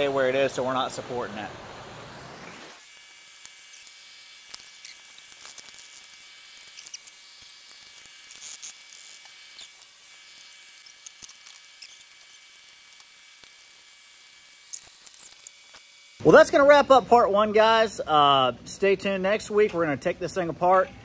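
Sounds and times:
faint steady hiss: 0.0s - 10.0s
metal parts clicking and scraping: 3.8s - 13.8s.

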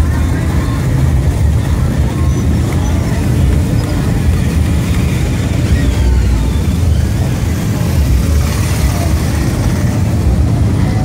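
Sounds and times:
vehicle engines rumbling past: 0.0s - 11.0s.

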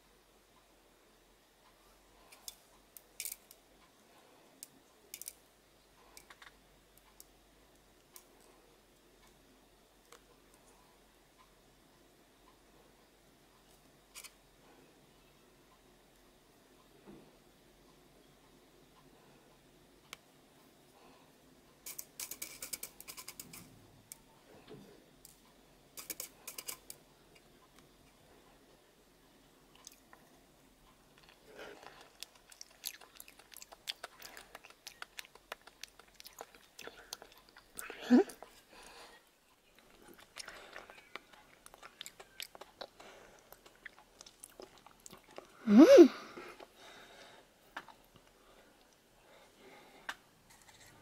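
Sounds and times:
sticky candy clicks: 31.2s - 38.5s, 39.8s - 45.5s.

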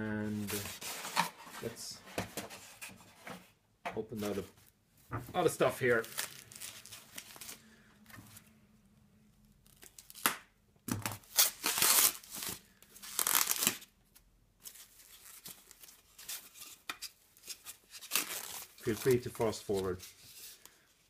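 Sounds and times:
soft foam crinkling: 4.1s - 8.5s, 14.6s - 21.0s
foam wrap rustling and tearing: 5.4s - 7.6s, 9.6s - 10.3s, 11.1s - 13.9s, 14.6s - 20.9s.

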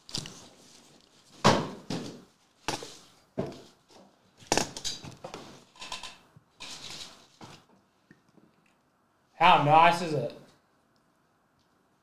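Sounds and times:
items knocking on a table: 1.4s - 2.8s, 3.4s - 3.7s.

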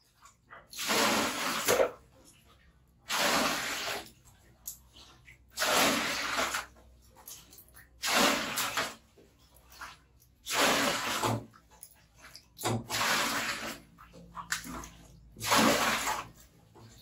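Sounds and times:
water pouring into metal basin: 0.3s - 2.0s, 3.0s - 4.8s, 5.4s - 6.9s, 7.5s - 9.1s, 9.7s - 16.5s.

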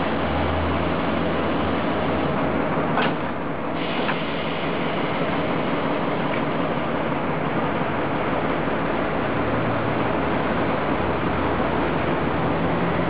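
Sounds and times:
tram rolling on rails: 0.0s - 13.0s.

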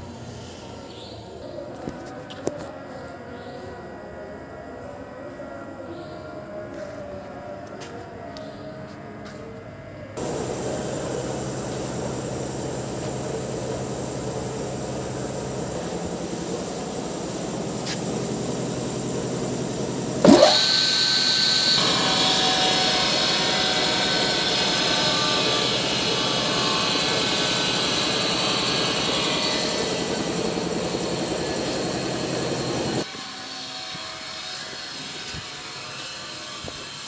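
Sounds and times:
background hum: 0.0s - 33.0s
electric motor whining: 10.2s - 33.1s.

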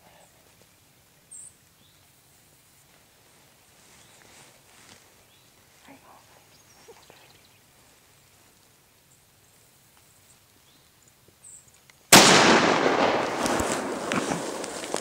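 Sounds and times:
rifle shot: 12.1s - 15.0s.

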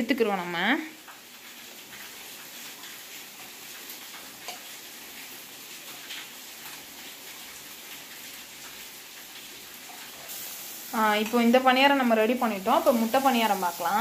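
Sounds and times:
dumplings sizzling in a pan: 0.0s - 14.0s.

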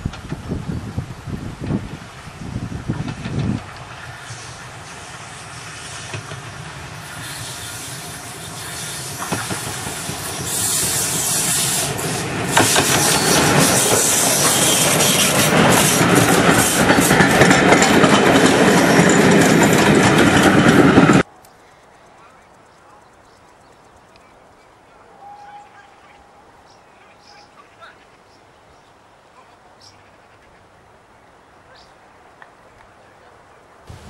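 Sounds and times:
steam locomotive exhaust: 0.0s - 21.3s
train coaches rattling over rails: 1.6s - 21.3s.

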